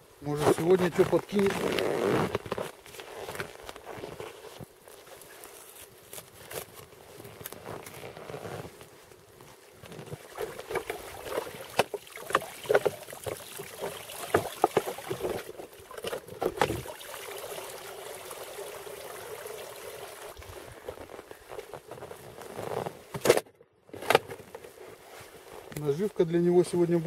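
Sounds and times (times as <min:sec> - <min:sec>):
water sloshing: 0:09.7 - 0:21.3.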